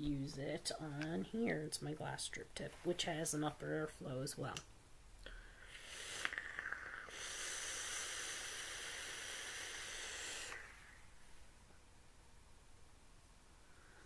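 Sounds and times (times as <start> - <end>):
vaporizer crackles: 0.0 - 11.0
hiss of liquid vaporizing: 5.7 - 10.9.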